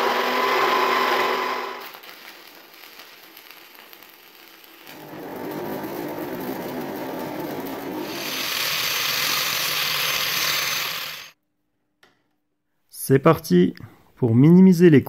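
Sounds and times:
welding arc crackling and sizzling: 0.0 - 11.4.

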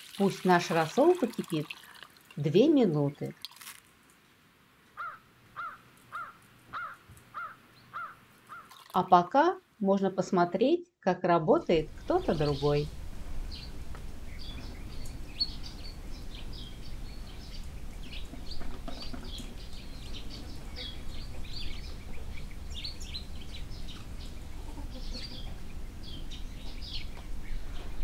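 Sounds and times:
small birds chirping: 0.6 - 9.2, 11.7 - 28.0
low background rumble: 11.6 - 28.0.

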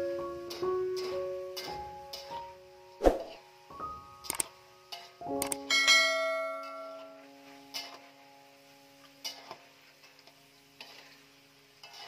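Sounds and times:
metal wok ringing: 0.4 - 2.6, 4.8 - 12.0.

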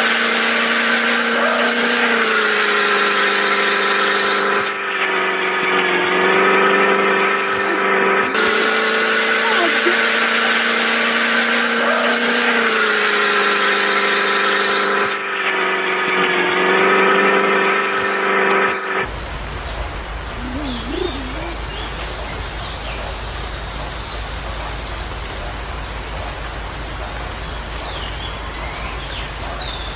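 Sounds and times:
humming drone of held tones: 0.0 - 19.1
bird chirps: 4.7 - 5.1, 15.2 - 15.5, 19.6 - 29.9.

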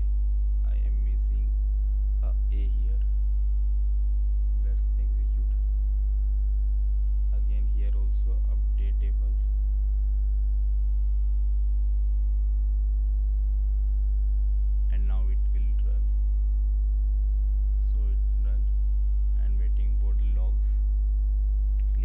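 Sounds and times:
electrical mains hum: 0.0 - 22.0
low mumbled voice: 0.6 - 1.5, 2.2 - 3.1, 4.6 - 5.6, 7.3 - 9.4, 14.9 - 16.1, 17.8 - 18.7, 19.4 - 20.8.

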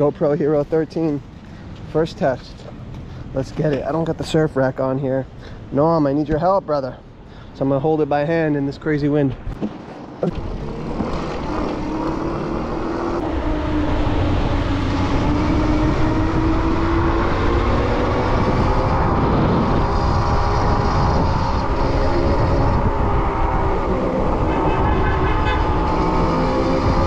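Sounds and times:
wind buffeting microphone: 9.3 - 27.0.

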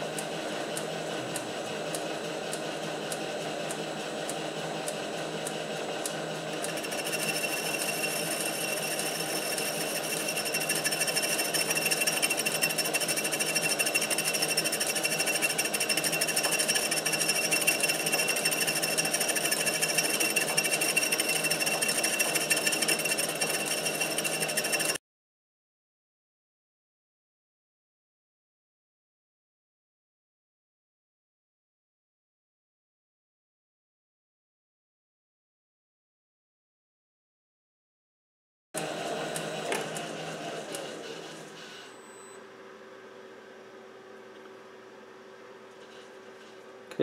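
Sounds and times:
metal lathe running: 0.0 - 25.0, 38.8 - 42.0
cutting bit high whine: 6.0 - 25.0.

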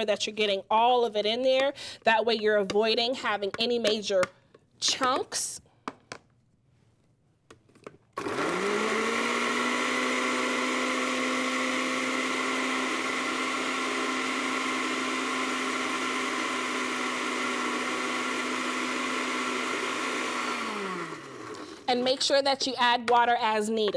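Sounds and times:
blender motor running: 8.2 - 21.9.

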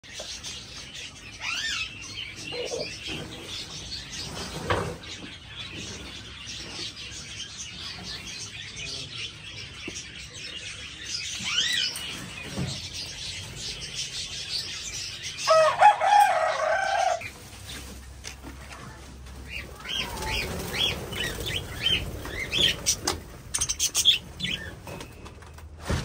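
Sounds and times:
budgerigars chirping and chattering: 0.0 - 25.6
rooster crowing: 15.5 - 17.2.

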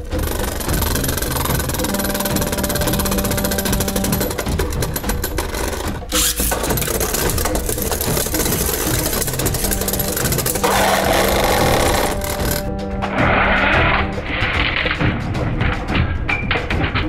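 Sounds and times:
rapid clicking: 0.0 - 12.9
spinning tops whirring and rattling: 0.0 - 13.3.

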